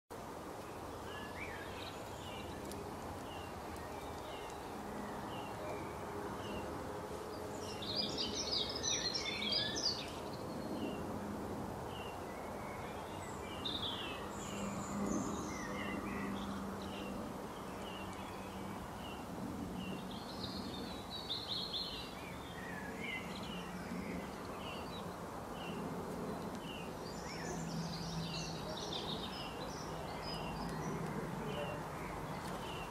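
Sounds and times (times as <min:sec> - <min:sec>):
low outdoor drone: 0:00.1 - 0:32.9
bursts of birdsong: 0:00.6 - 0:32.9.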